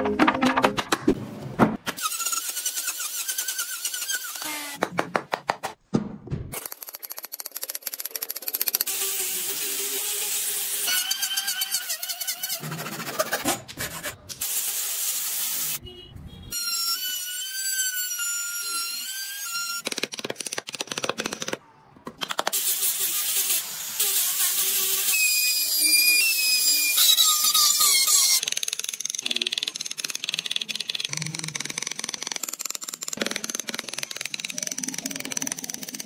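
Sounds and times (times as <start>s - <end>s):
loud rasping cutting noise: 1.9s - 4.8s, 8.4s - 14.1s
rapid clicking of tools: 6.6s - 8.9s, 28.4s - 36.0s.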